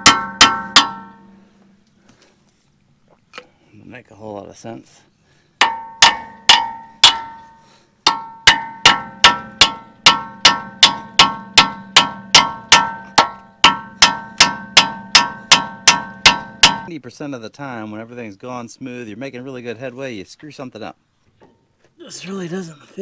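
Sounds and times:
hammer striking metal pin: 0.0s - 1.3s, 5.6s - 16.9s.

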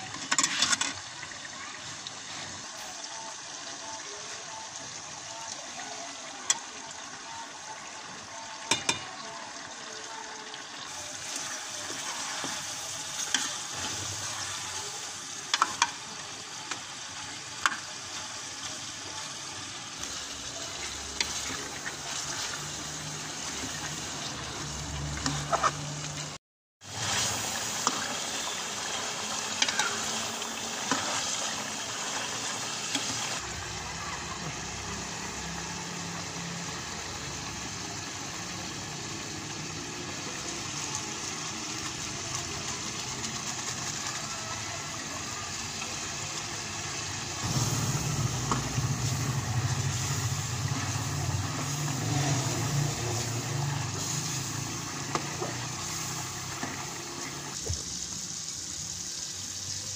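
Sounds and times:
curry simmering and sizzling in pot: 0.0s - 59.9s
metal ladle scraping pot: 0.1s - 1.0s, 25.2s - 25.9s
steady low rumble: 47.4s - 51.6s.

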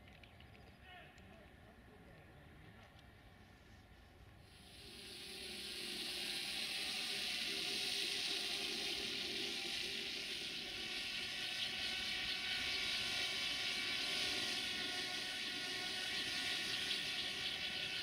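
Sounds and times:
drone propellers whirring: 4.5s - 18.0s.

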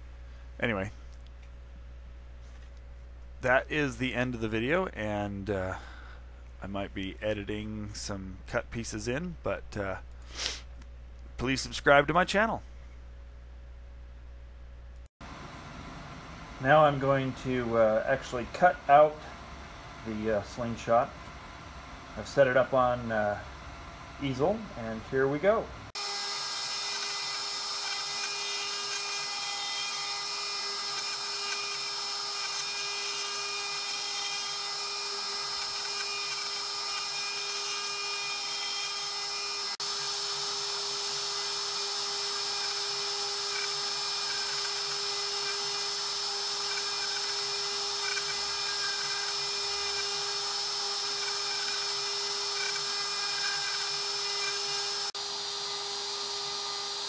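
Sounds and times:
router spindle cutting wood: 26.0s - 57.0s.

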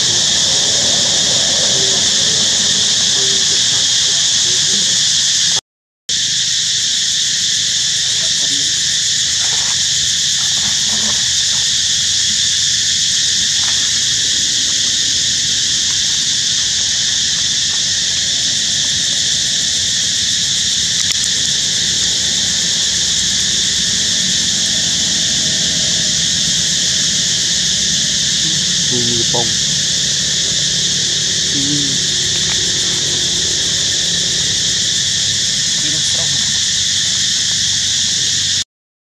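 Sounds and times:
insects buzzing: 0.0s - 38.6s.

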